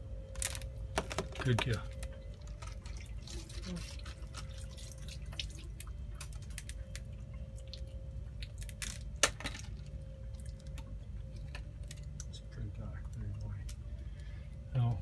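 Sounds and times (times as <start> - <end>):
low steady hum: 0.0 - 15.0
eggshell cracking and clicking: 3.8 - 12.3.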